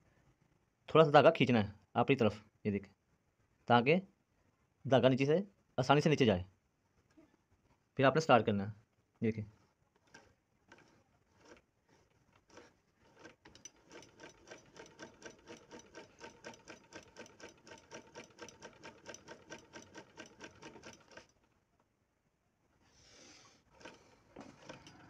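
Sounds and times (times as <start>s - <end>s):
sewing machine clicking: 10.0s - 21.6s, 23.6s - 25.0s.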